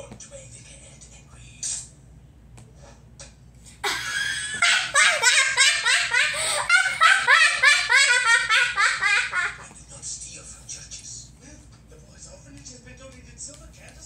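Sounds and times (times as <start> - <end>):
high-pitched laughter: 3.8 - 9.6.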